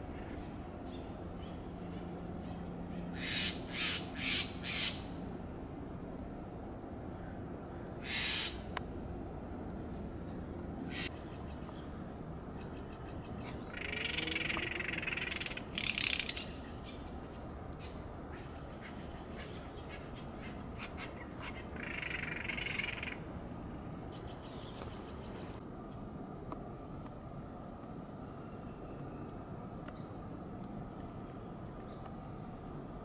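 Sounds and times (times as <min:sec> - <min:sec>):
jay giving harsh raspy calls: 0:03.2 - 0:05.0, 0:08.0 - 0:08.6.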